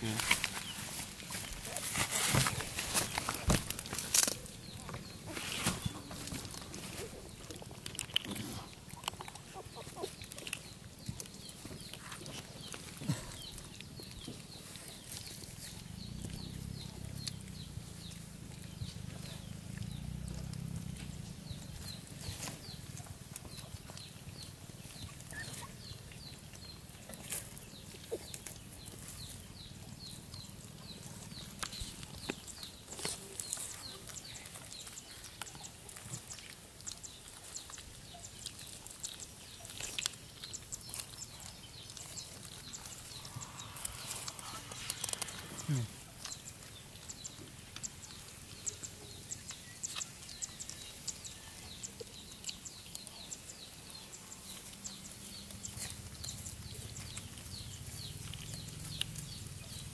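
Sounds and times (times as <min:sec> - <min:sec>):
puppies rustling through dry leaves: 0:00.0 - 0:07.9, 0:08.7 - 0:59.9.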